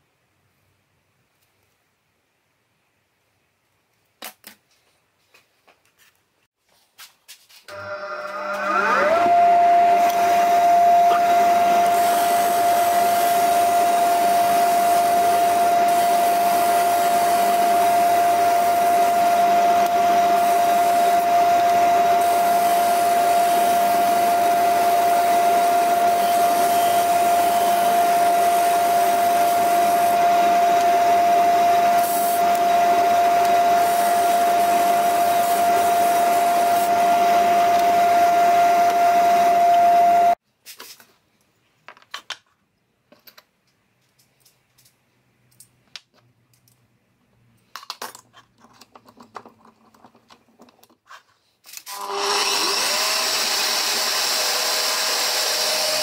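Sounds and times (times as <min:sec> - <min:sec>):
disc sander whining: 0:07.7 - 0:40.4.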